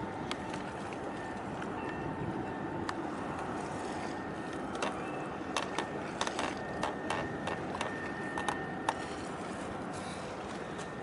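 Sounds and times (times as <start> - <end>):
steady background noise: 0.0 - 11.0
sharp clicks and ticks: 4.7 - 9.0.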